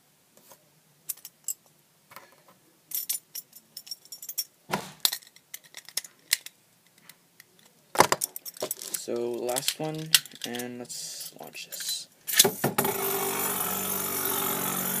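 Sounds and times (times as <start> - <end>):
plastic clatter: 7.6 - 10.7.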